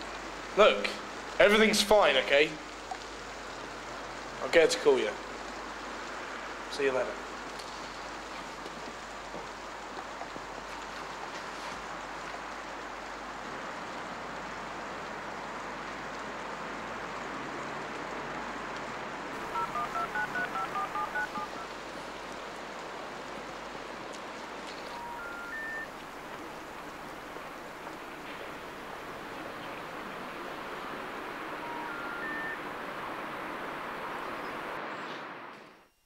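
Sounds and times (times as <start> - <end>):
background hiss: 0.0 - 36.0
phone keypad beeps: 19.5 - 21.7, 24.9 - 25.9, 31.6 - 32.6
rising three-note tone: 31.6 - 32.6.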